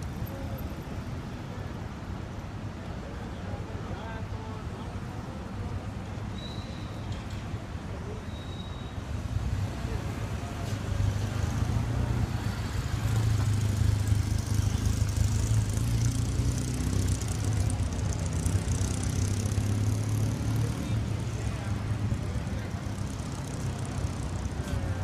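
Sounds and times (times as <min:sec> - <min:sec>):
road and tyre hiss: 0:00.0 - 0:25.0
vehicle engine running: 0:12.7 - 0:25.0.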